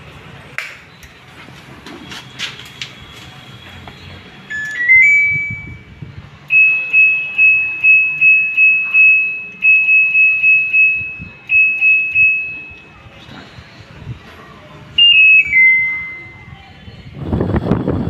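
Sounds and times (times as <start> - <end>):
quick high beeps: 4.5 - 5.9, 6.5 - 13.0, 15.0 - 16.5.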